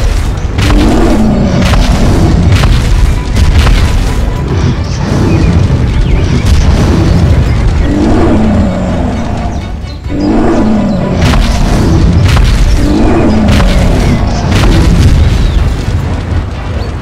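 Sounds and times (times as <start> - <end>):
impact sound effects: 0.0 - 10.2, 11.0 - 16.3
dramatic background music: 0.0 - 17.0
heavy booming explosions: 0.0 - 17.0.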